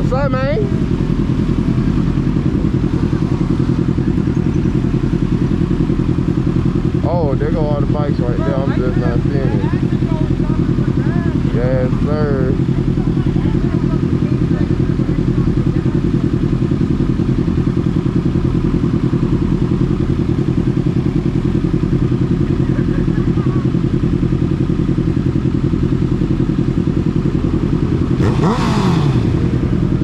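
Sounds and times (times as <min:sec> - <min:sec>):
motorcycle engine idling: 0:00.0 - 0:30.0
engine revving: 0:27.8 - 0:30.0.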